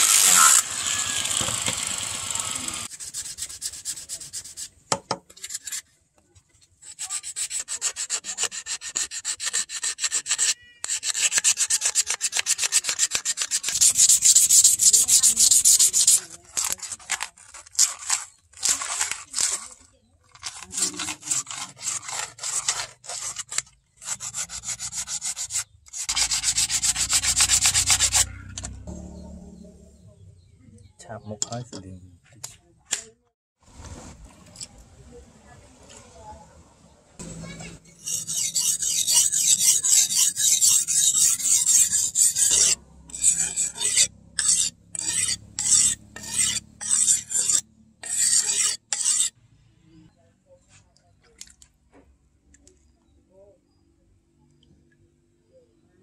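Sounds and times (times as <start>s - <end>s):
hand tool scraping wood: 0.0s - 5.9s, 6.8s - 28.8s, 37.3s - 49.4s.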